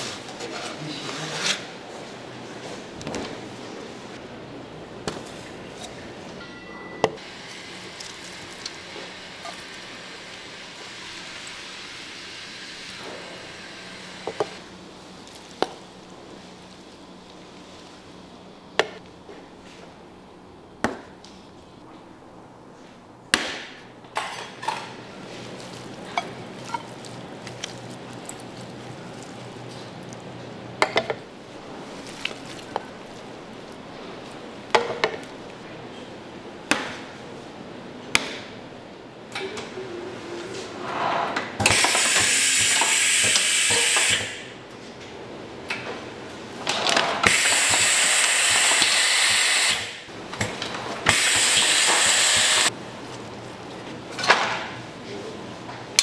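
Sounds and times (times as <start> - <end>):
machine hissing: 41.6 - 44.5, 47.2 - 50.1, 51.1 - 52.7.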